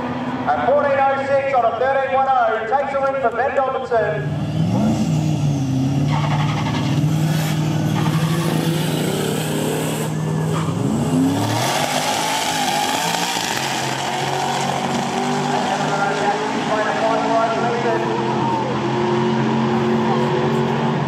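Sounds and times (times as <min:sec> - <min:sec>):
racing engines revving: 0:02.9 - 0:21.0
engines accelerating away: 0:04.0 - 0:21.0.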